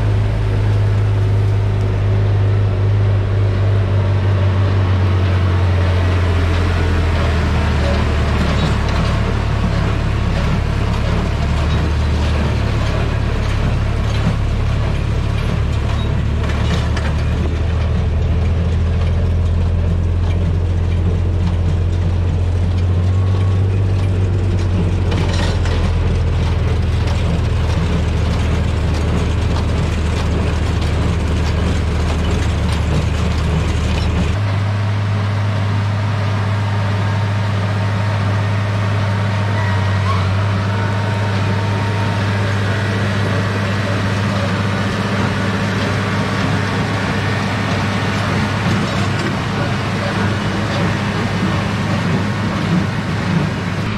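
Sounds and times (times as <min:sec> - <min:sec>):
tractor diesel engine running: 0:00.0 - 0:53.9
baler mechanism working: 0:05.2 - 0:34.4.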